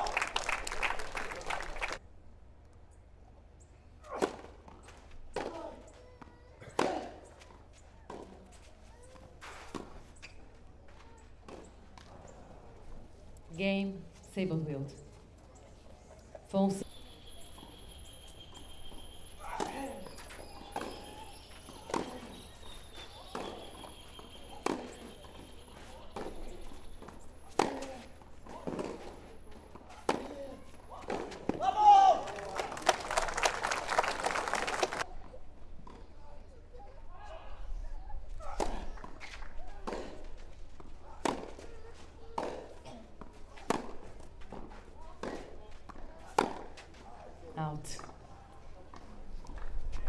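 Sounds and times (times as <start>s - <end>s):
tennis ball hit by rackets: 6.7s - 7.2s, 19.5s - 31.7s, 41.2s - 41.7s, 43.6s - 46.8s
tennis racket hitting ball: 21.7s - 22.3s, 24.6s - 29.2s, 46.3s - 46.8s.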